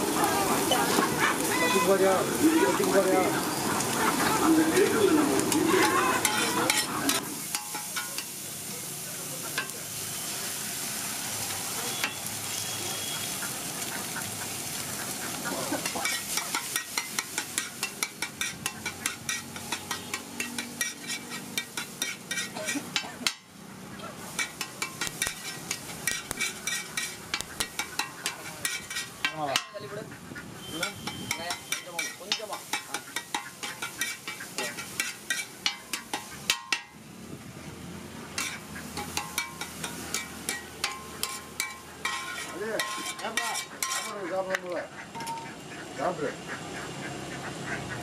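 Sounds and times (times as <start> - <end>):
eggs sizzling on hot iron: 0.0 - 29.9, 30.6 - 37.1, 37.8 - 45.8
metal spatula scraping and chopping: 5.4 - 8.4, 15.6 - 23.5, 24.2 - 29.9, 30.6 - 37.0, 38.3 - 45.6.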